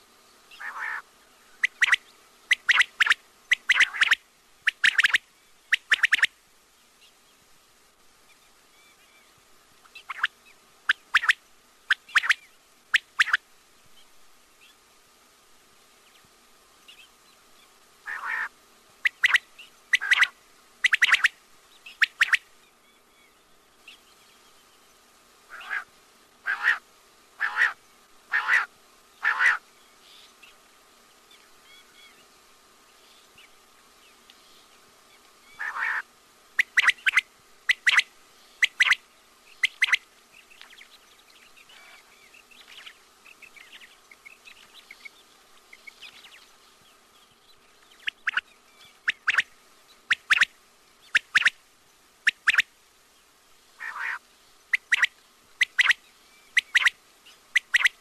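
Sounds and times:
faint chirps: 0.0 - 15.1, 15.8 - 58.0
quail calling: 0.5 - 6.3, 9.8 - 10.3, 10.9 - 13.4, 18.0 - 22.4, 25.5 - 26.8, 27.4 - 29.6, 35.5 - 39.0, 39.6 - 40.0, 49.0 - 49.5, 50.1 - 50.5, 51.1 - 51.6, 52.2 - 52.7, 53.8 - 58.0.

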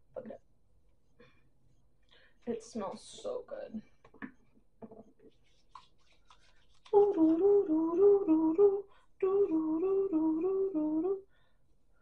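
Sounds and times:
woman humming a tune: 7.0 - 11.2.

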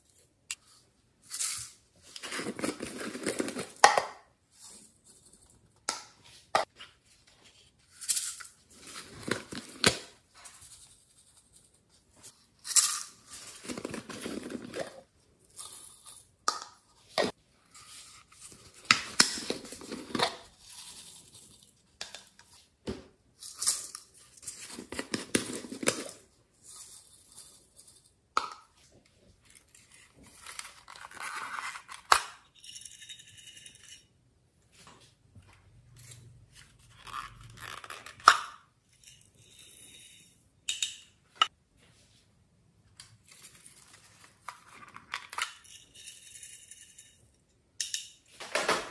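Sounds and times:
plastic tubs rustling and clicking: 2.0 - 3.9, 13.4 - 15.1.

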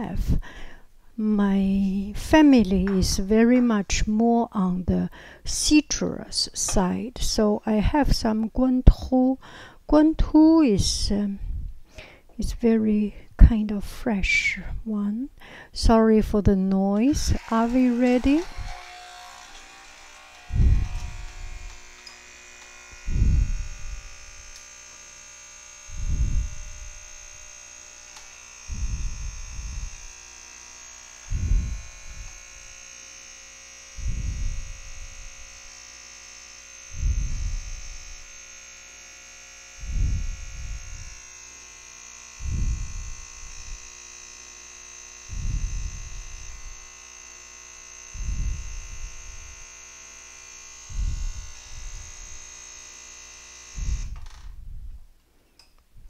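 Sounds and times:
low throb: 17.0 - 32.9, 33.9 - 35.8, 36.8 - 38.6, 39.6 - 53.0, 53.6 - 55.1
coffee machine humming and whining: 17.2 - 54.4.

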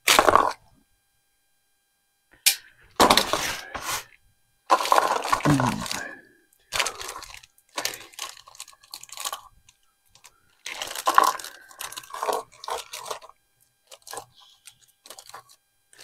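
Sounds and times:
plastic pack crinkling: 4.7 - 6.1, 6.7 - 16.0.

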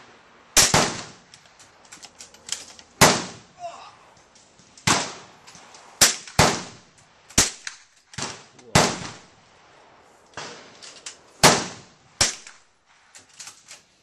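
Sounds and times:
gunshots with echo: 8.2 - 9.3.

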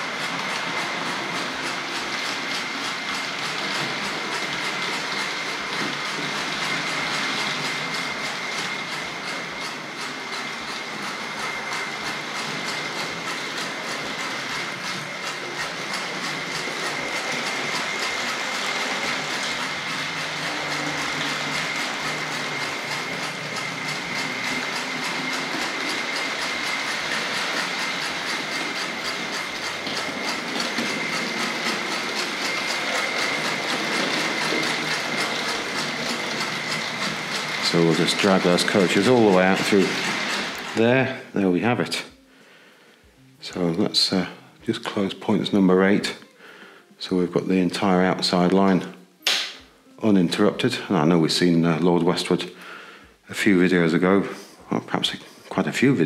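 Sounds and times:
electric motor whine: 0.0 - 41.6
wheels clattering over track: 0.0 - 42.0
rhythmic chuffing hiss: 0.0 - 56.0.

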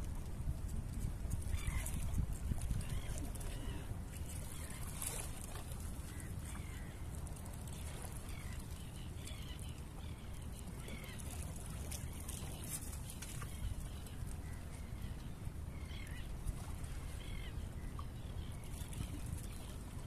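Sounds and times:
wind on microphone: 0.0 - 6.6
water lapping against rocks: 1.2 - 9.6.

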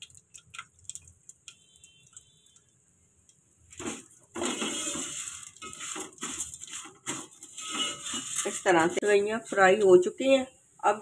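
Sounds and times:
spatula scraping noodles in pan: 3.7 - 9.2.

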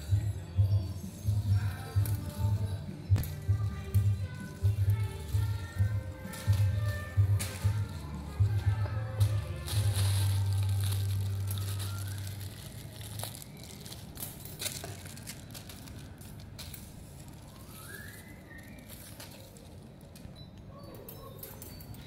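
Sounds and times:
plastic bag crinkling: 3.2 - 20.3.

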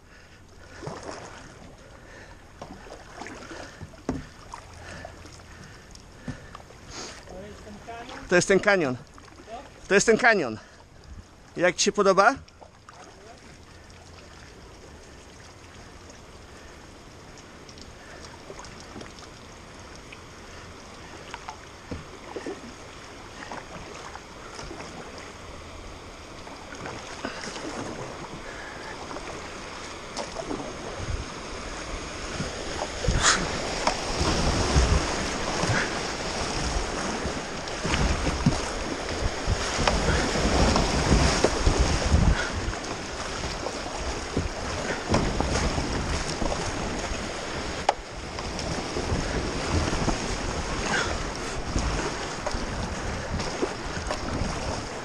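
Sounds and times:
paddle splashes: 0.0 - 55.0
rushing river water: 0.0 - 55.0
wind buffeting on microphone: 30.7 - 55.0.

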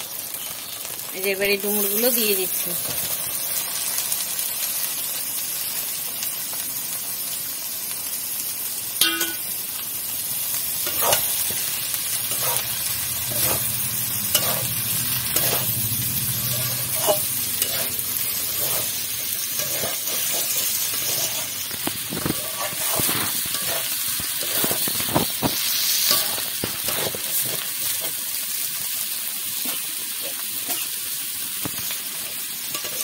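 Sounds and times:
food sizzling in oil: 0.0 - 33.0
sharp metal clink: 9.0 - 9.5
metal spatula scraping a pan: 10.8 - 28.2, 32.7 - 33.0.

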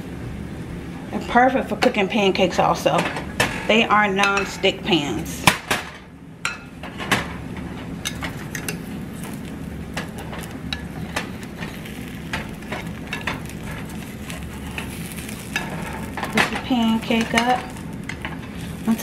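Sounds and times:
batter sizzling in frying pan: 8.0 - 19.0.

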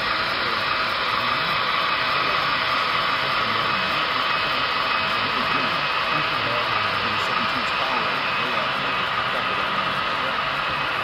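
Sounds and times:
distant murmur of voices: 0.0 - 11.0
hiss-like hall noise: 0.0 - 11.0.

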